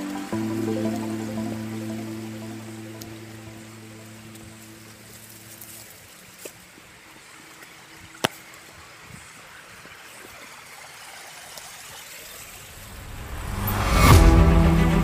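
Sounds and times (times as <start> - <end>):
creek running over stones: 0.0 - 14.2.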